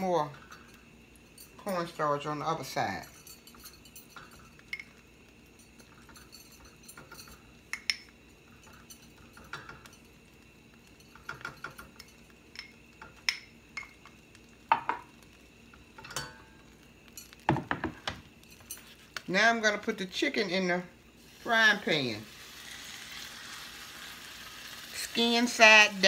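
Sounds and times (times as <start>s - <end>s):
brush clinking against glass bowl: 2.8s - 10.1s.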